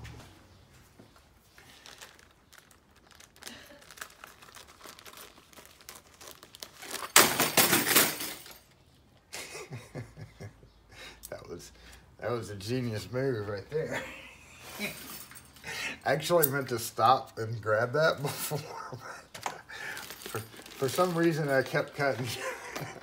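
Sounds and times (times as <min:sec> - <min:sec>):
plastic bag crinkling: 0:01.5 - 0:08.7, 0:19.5 - 0:23.0.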